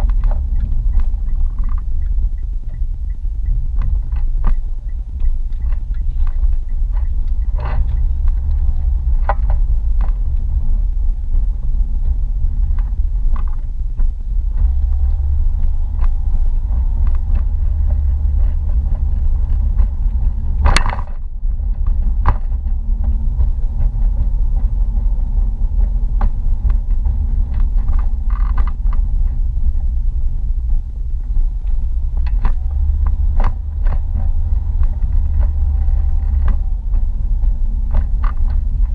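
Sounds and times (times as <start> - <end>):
car interior rumble: 0.0 - 38.9
small clicks and knocks: 12.0 - 24.8.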